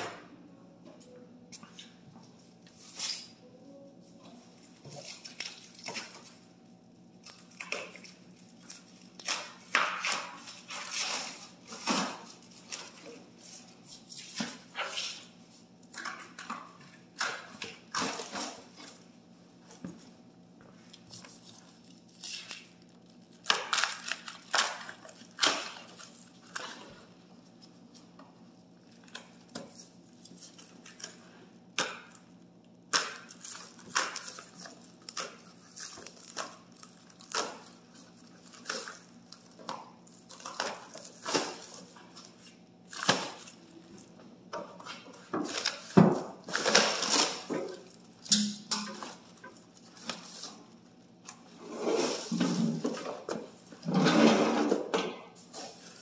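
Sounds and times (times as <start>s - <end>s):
low steady hum: 0.0s - 56.0s
plastic wrap crinkling: 4.1s - 15.3s, 20.9s - 44.2s, 45.0s - 48.2s.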